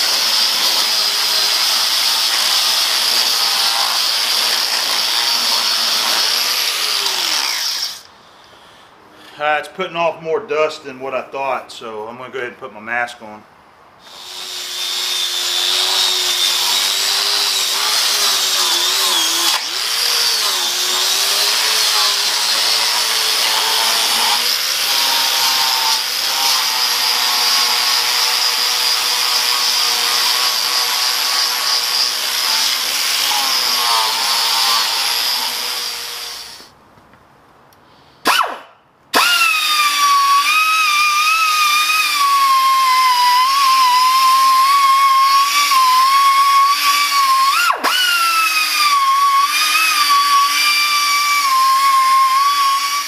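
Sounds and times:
angle grinder on metal: 0:00.0 - 0:08.1, 0:14.0 - 0:36.7, 0:39.2 - 0:53.0
air grinder running: 0:14.1 - 0:26.8.

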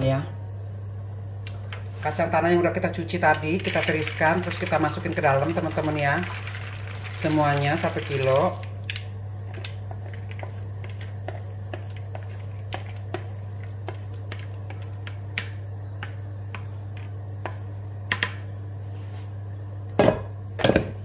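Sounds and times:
steady low hum: 0:00.0 - 0:21.0
wooden spoon scraping peanuts: 0:09.4 - 0:15.2.

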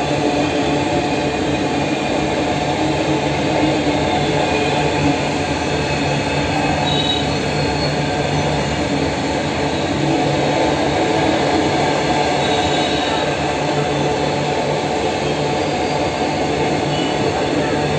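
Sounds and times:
train wheels rumbling on rail: 0:00.0 - 0:17.9
high wheel squeal: 0:06.7 - 0:08.2, 0:15.6 - 0:17.3.

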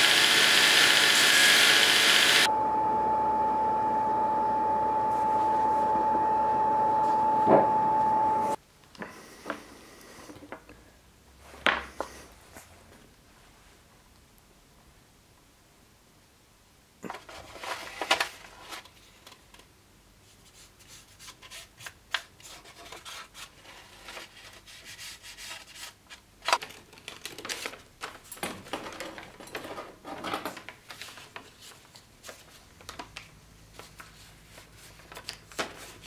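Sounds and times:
paper rustling and crinkling: 0:17.1 - 0:19.7, 0:20.5 - 0:29.4, 0:30.4 - 0:36.0.

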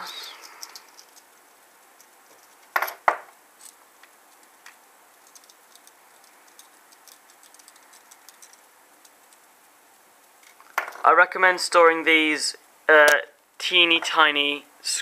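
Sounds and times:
screwdriver ticking: 0:04.4 - 0:09.4.

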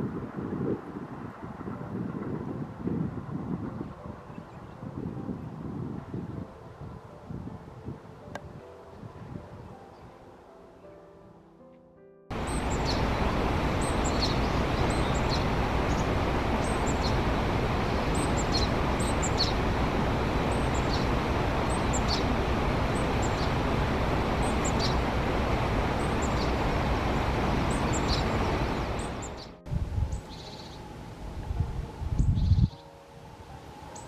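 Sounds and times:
steady rushing background noise: 0:12.3 - 0:34.0.

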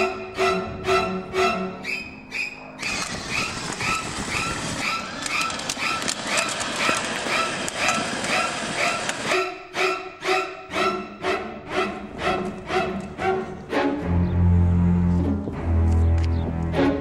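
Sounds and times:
electronic siren chirping: 0:01.8 - 0:09.0
clicks: 0:04.8 - 0:09.2.

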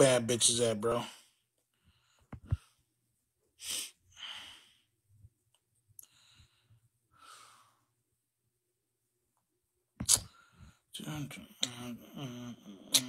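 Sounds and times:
man breathing: 0:01.0 - 0:02.9, 0:03.6 - 0:05.1, 0:06.0 - 0:08.0.

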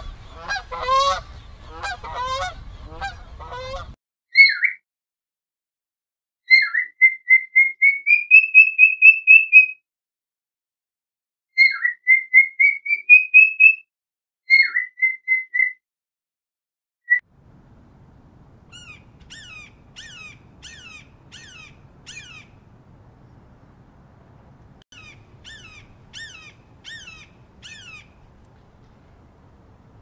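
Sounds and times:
cockatiel whistling: 0:06.5 - 0:09.8, 0:11.6 - 0:13.8, 0:14.5 - 0:15.8, 0:25.0 - 0:28.1
faint hawk calls: 0:18.7 - 0:22.6, 0:25.0 - 0:28.2.

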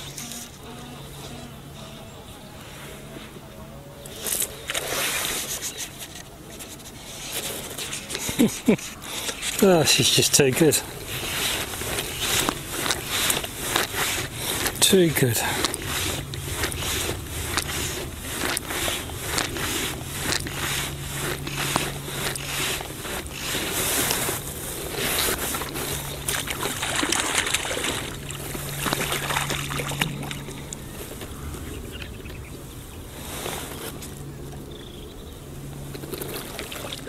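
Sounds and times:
steady low hum: 0:00.0 - 0:37.0
fishing line clicks and rustles: 0:04.0 - 0:31.3, 0:35.7 - 0:37.0
wind buffeting microphone: 0:09.8 - 0:35.5.

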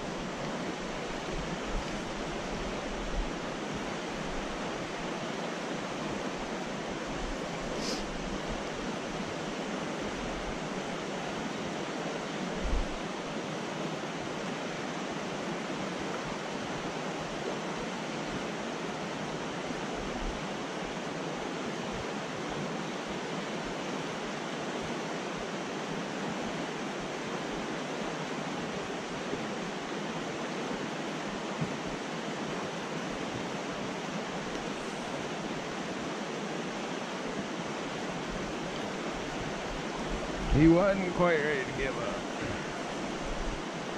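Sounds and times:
stream rushing over rocks: 0:00.0 - 0:43.9.

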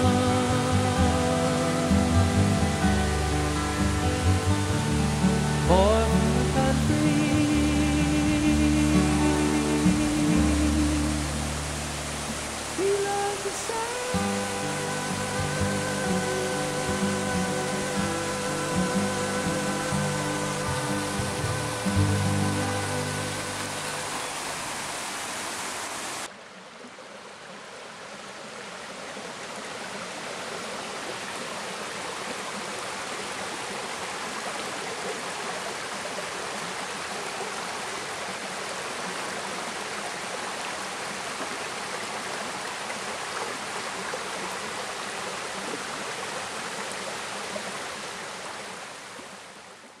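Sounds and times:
water flowing over rocks: 0:00.0 - 0:50.0
waterfall splashing onto rocks: 0:09.0 - 0:26.3.

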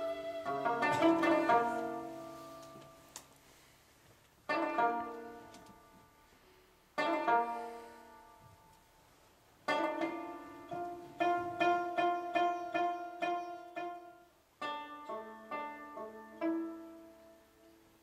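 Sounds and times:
plucked lute melody: 0:00.0 - 0:03.1, 0:04.5 - 0:06.2, 0:07.0 - 0:08.4, 0:09.6 - 0:17.8.

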